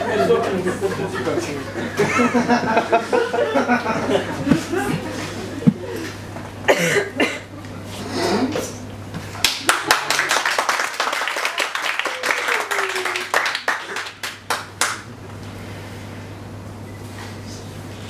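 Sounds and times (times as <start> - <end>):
audience laughing: 0.0 - 6.1
audience clapping: 9.4 - 15.1.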